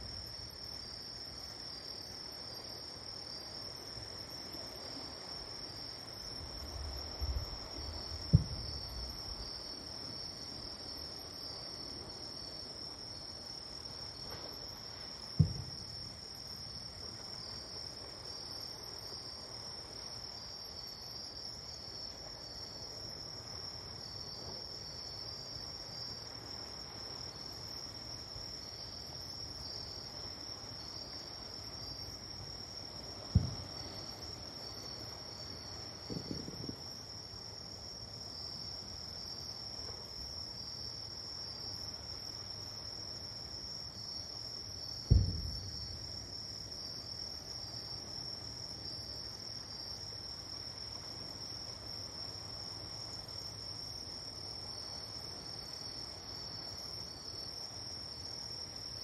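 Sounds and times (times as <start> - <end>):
crickets chirping: 0.0 - 59.0
distant fireworks booms: 8.1 - 9.1, 15.4 - 16.1, 33.2 - 34.1, 36.0 - 36.9, 45.0 - 46.1
faint fireworks pops: 8.2 - 9.0, 15.4 - 15.9, 33.3 - 34.0, 36.0 - 36.8, 45.0 - 46.0.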